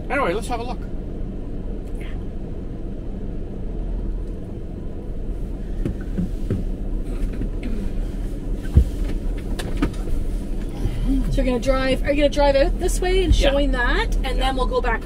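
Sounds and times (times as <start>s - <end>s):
van engine idling: 0.0s - 15.0s
dull thump: 5.7s - 7.8s, 8.6s - 11.1s.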